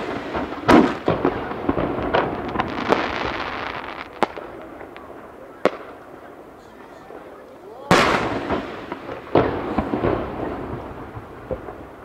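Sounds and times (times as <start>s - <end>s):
firework boom: 7.9s - 12.0s.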